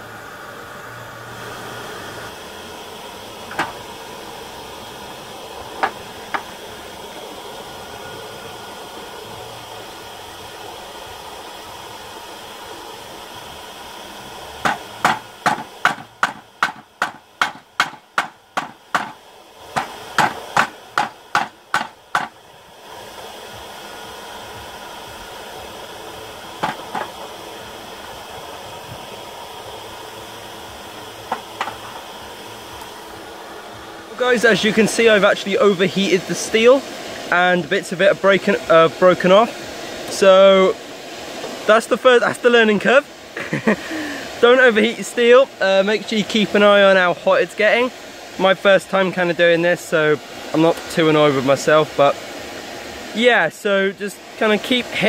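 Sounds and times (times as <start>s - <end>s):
background whir: 0.0s - 55.0s
hammer striking steel on anvil: 14.7s - 19.2s, 19.8s - 22.3s.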